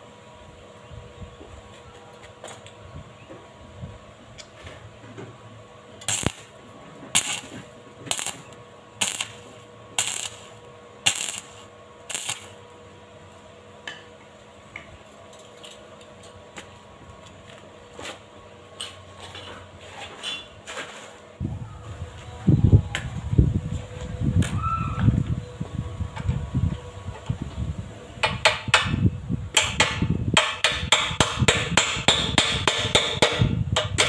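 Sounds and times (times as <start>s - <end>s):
arc welding crackling bursts: 6.0s - 12.7s.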